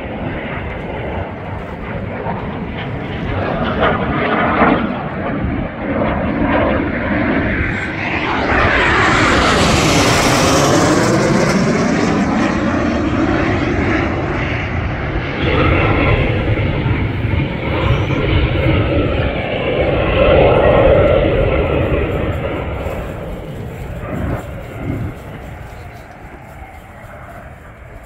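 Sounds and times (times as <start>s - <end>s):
airplane engine roar: 0.0s - 28.0s.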